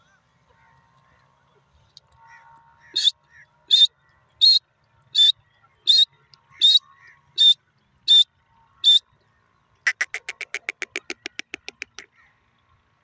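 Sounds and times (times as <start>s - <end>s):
shrill bird calls: 2.2s - 9.1s.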